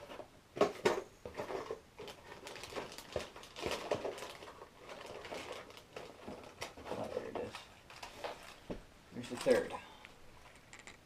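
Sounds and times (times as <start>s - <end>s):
small clicks and knocks: 10.5s - 11.0s.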